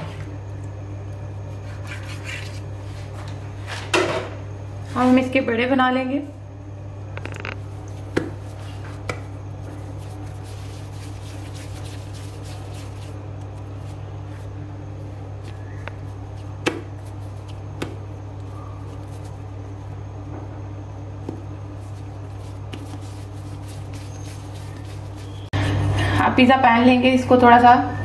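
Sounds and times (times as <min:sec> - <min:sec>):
steady low hum: 0:00.0 - 0:28.0
hands handling dough: 0:07.2 - 0:20.4, 0:21.1 - 0:25.5.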